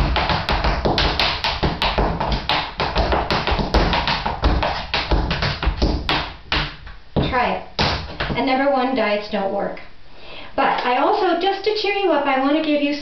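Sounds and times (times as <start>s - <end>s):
tap shoes on hard floor: 0.0s - 8.4s.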